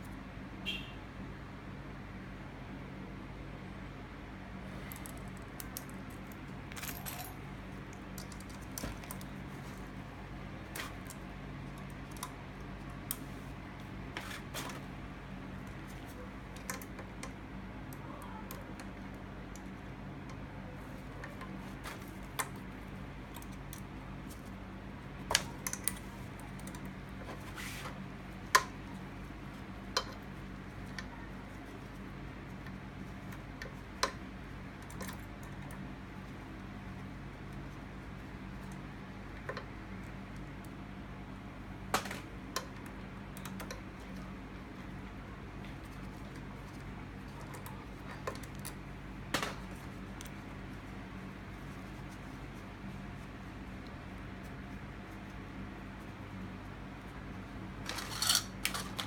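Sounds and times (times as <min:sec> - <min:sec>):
clicks of small metal parts and tools: 0:57.9 - 0:59.0.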